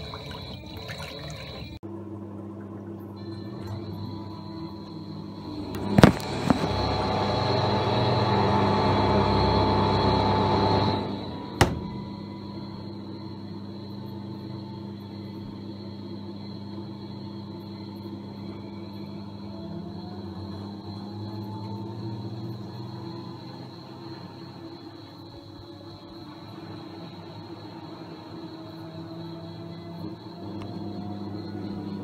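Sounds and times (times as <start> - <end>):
washing machine humming: 0.0 - 32.0
washing machine water rushing: 0.0 - 32.0
washing machine click: 11.5 - 12.2.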